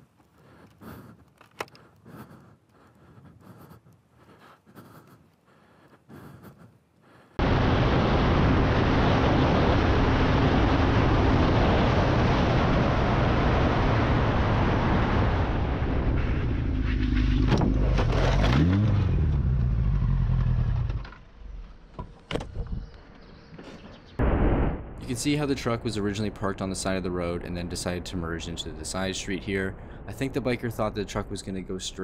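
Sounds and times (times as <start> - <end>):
wind rush: 7.4 - 17.4
motorcycle engine: 15.6 - 21.7.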